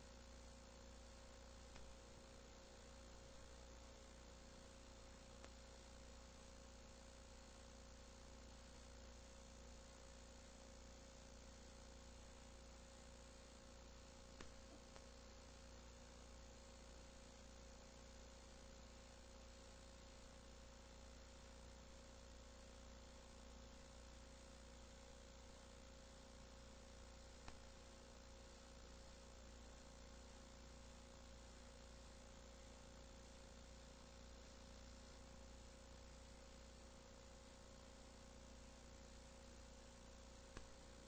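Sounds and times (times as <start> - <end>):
faint electrical hum and hiss: 0.0 - 41.0
faint ticks: 1.6 - 2.0, 5.3 - 5.7, 14.3 - 15.2, 27.4 - 27.8, 40.4 - 41.0.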